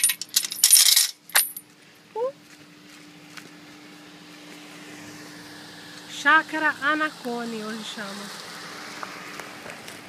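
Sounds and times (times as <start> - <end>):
metal chain clinking: 0.0 - 1.6
car engine humming: 0.0 - 10.0.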